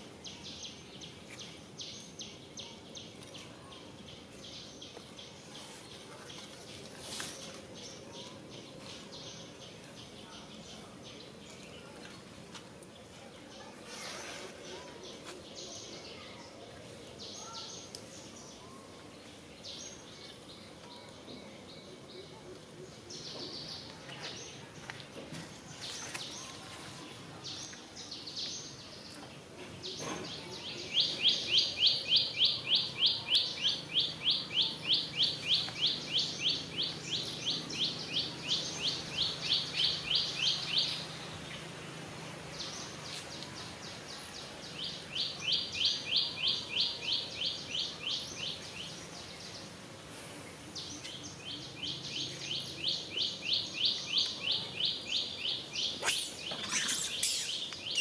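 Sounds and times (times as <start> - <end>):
bird chirping rapidly: 55.8 - 58.0.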